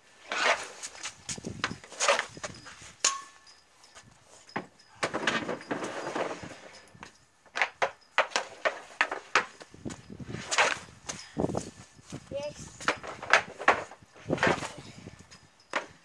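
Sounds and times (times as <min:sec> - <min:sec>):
puck ringing off metal goal: 0:03.0 - 0:03.4.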